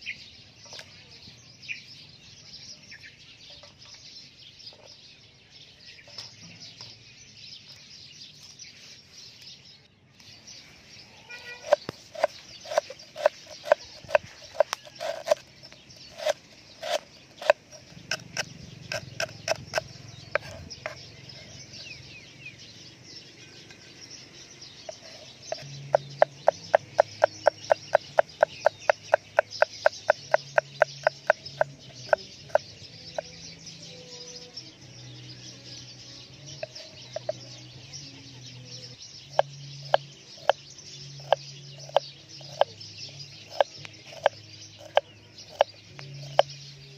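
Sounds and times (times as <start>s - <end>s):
cleaver chopping on wooden board: 11.6s - 15.4s, 16.1s - 21.0s, 24.9s - 32.6s, 41.2s - 42.7s.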